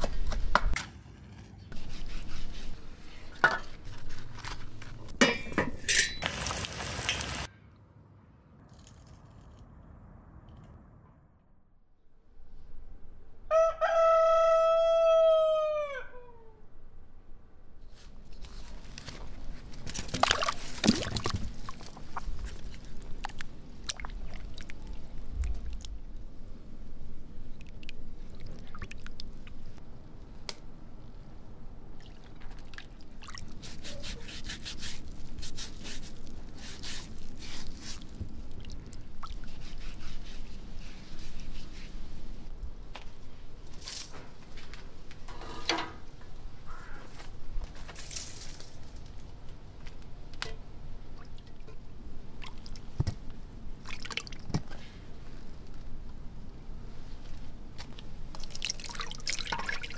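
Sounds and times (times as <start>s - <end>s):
rooster crowing: 13.5s - 16.6s
potatoes washed in water: 19.9s - 26.0s, 31.9s - 39.8s, 53.8s - 54.7s, 58.3s - 59.9s.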